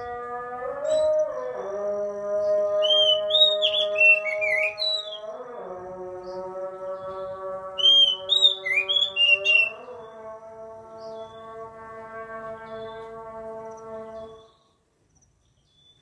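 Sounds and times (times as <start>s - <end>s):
steady droning tone: 0.0s - 2.6s
bird singing whistled phrases: 2.8s - 5.2s, 7.8s - 9.8s.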